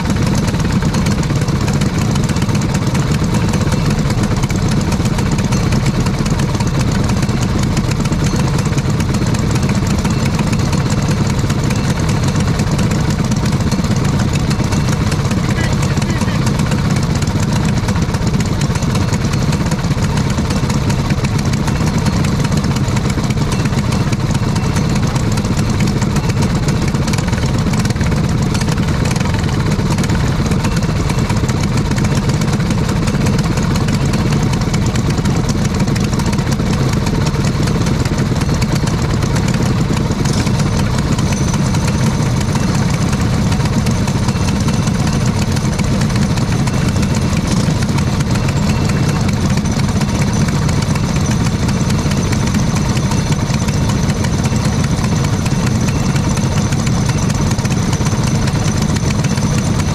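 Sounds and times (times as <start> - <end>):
kart engines idling: 0.0 - 59.9.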